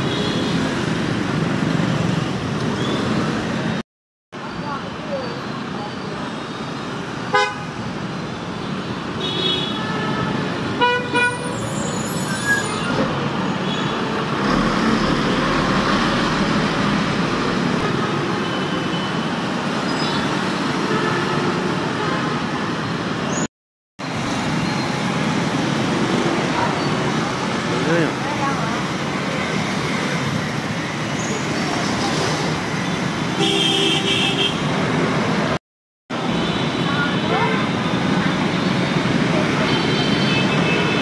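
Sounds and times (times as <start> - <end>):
passing cars and motorbikes: 24.0 - 33.5, 36.2 - 41.0
vehicle horn honking: 33.4 - 34.6.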